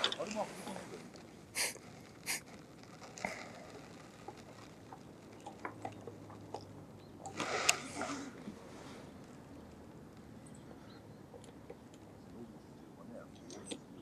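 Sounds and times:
faint clicks and knocks: 3.8s - 7.4s.

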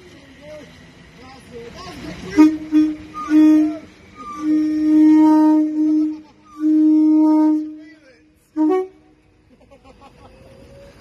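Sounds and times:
train horn blasts: 2.2s - 9.3s.

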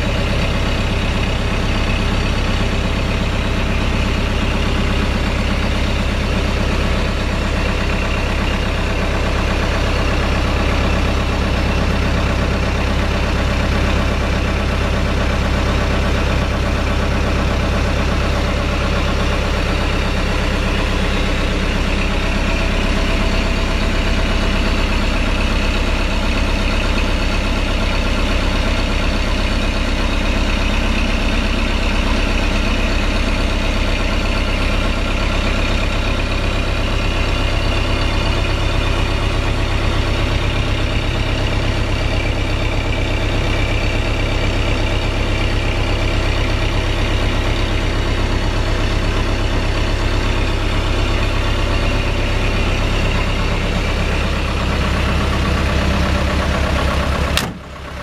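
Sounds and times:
diesel engine idling: 0.0s - 58.0s.

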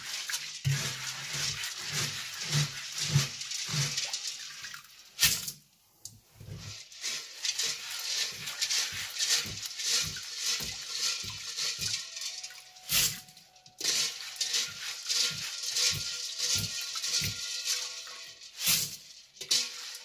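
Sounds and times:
water and beans swishing: 0.0s - 5.4s, 6.2s - 20.0s
sharp clatter: 6.9s - 20.0s.

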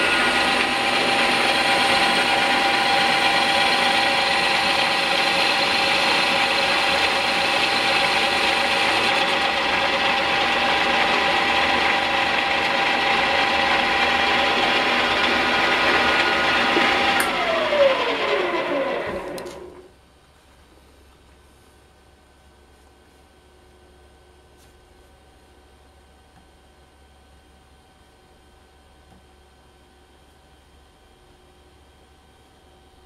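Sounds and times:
lathe spindle whining: 0.0s - 19.9s
click: 17.2s - 17.4s, 19.3s - 19.6s.

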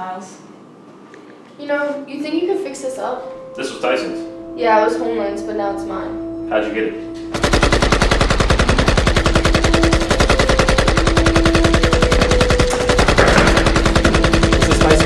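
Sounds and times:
low film score notes: 2.0s - 15.0s
automatic gunfire: 7.3s - 15.0s.

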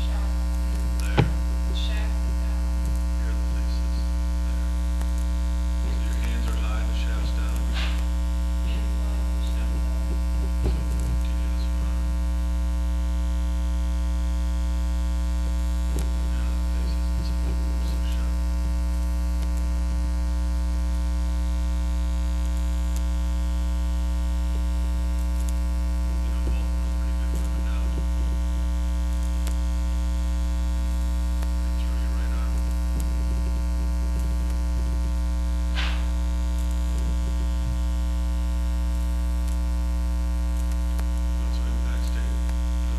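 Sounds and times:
electrical mains hum: 0.0s - 42.9s
faint clicks: 25.1s - 25.6s, 40.5s - 41.3s.

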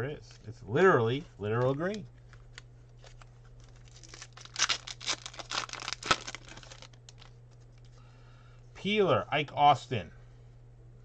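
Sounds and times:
foil wrapper tearing and crinkling: 2.5s - 7.3s.

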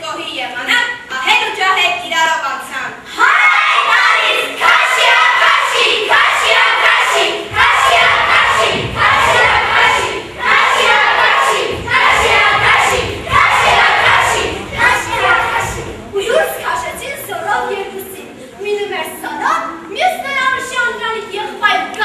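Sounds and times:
low thudding: 7.4s - 16.1s.

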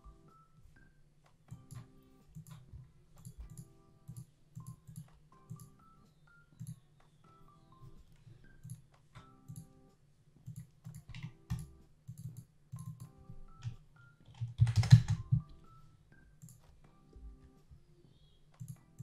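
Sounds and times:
computer keyboard typing: 1.5s - 5.8s, 10.4s - 15.7s.

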